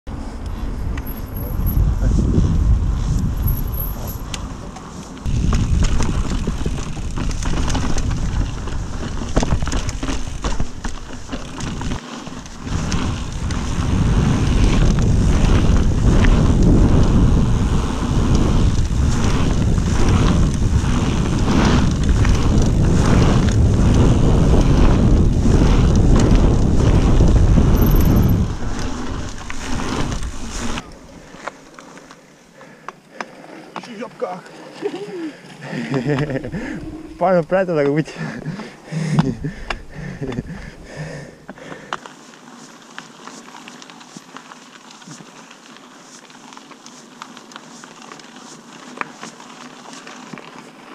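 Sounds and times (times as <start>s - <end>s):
wind buffeting microphone: 0.4s - 4.6s, 5.2s - 31.0s
tyre rumble on dirt: 2.4s - 31.6s
bike rattling and knocking: 5.2s - 30.9s.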